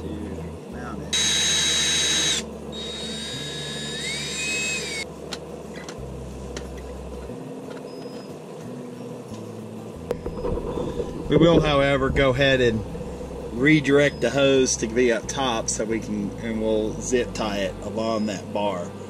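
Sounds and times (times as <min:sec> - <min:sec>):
power drill running: 0:01.2 - 0:05.0.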